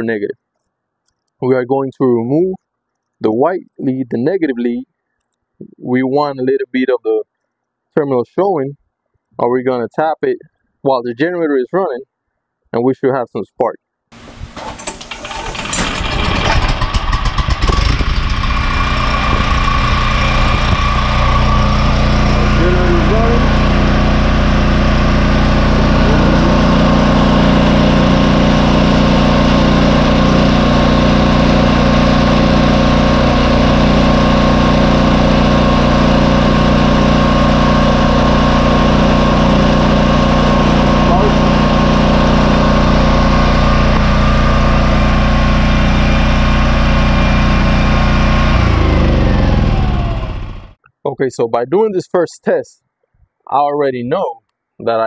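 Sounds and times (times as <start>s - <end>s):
generator engine running: 14.1s - 50.8s.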